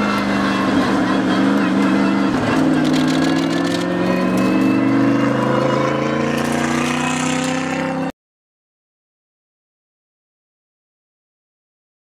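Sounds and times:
race car engine accelerating: 0.0 - 8.1.

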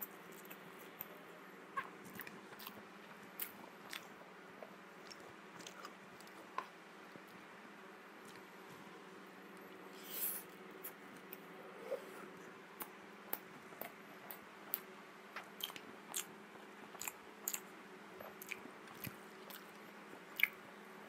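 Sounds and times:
wet chewing mouth clicks: 12.8 - 16.3, 16.9 - 20.6.

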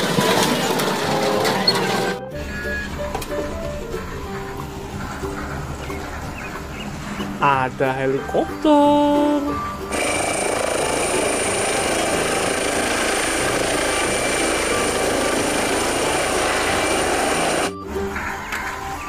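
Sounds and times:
music: 0.0 - 19.0
helicopter rotor and turbine: 9.9 - 17.8.

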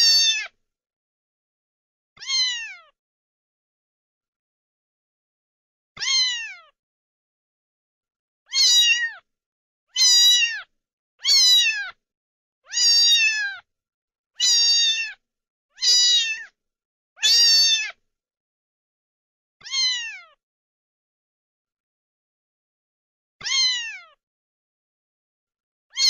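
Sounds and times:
cat meowing: 0.0 - 0.6, 2.2 - 3.0, 6.0 - 6.8, 8.5 - 9.2, 10.0 - 12.0, 12.7 - 13.6, 14.4 - 15.2, 15.8 - 16.6, 17.2 - 18.0, 19.6 - 20.4, 23.4 - 24.2.

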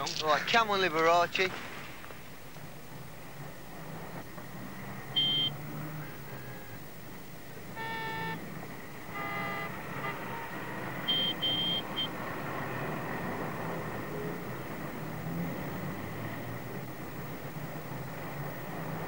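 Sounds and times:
traffic hum: 0.0 - 19.0
short high electronic beeps: 5.2 - 5.5, 11.1 - 12.1
horn-like blasts: 7.8 - 8.5, 9.1 - 12.0.

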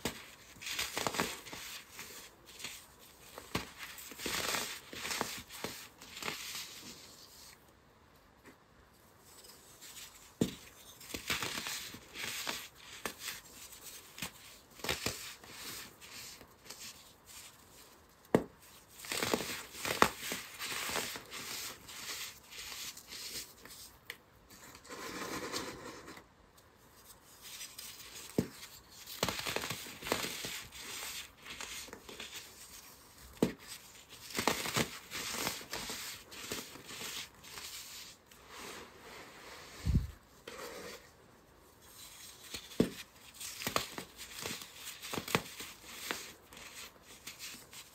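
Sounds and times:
soft powdery hiss: 0.0 - 47.9.

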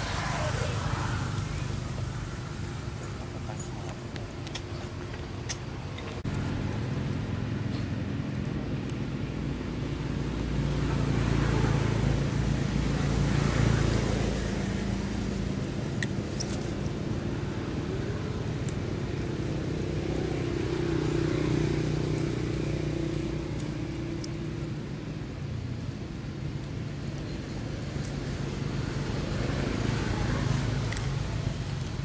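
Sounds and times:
vehicle engine hum: 0.0 - 32.0.

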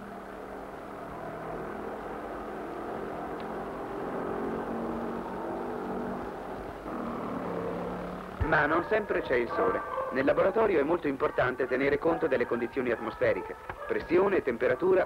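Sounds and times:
scooter engine running: 1.6 - 8.5.

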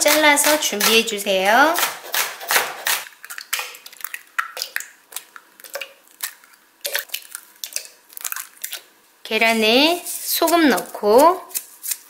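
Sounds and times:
eggshells cracking: 3.0 - 8.9.

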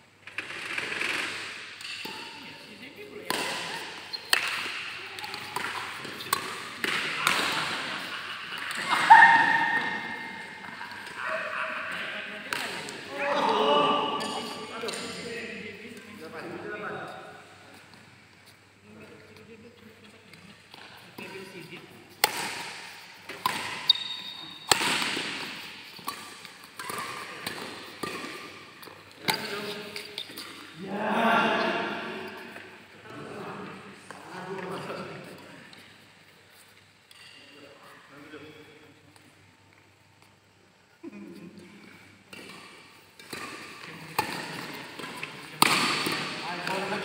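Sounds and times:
echoing racket hits: 3.2 - 11.2, 22.2 - 30.7, 42.3 - 47.0
shoe squeak: 23.8 - 24.6.

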